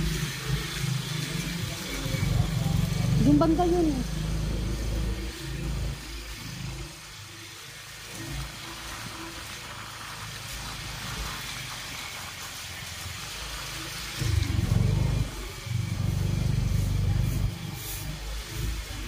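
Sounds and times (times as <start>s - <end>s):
motorcycle engine: 0.0s - 7.0s, 14.2s - 18.4s
road noise: 0.0s - 19.0s
loud low rumble: 14.2s - 17.7s.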